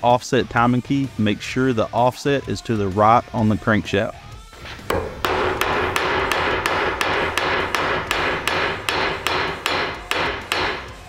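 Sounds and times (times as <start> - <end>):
hammer tapping on metal: 4.9 - 11.0.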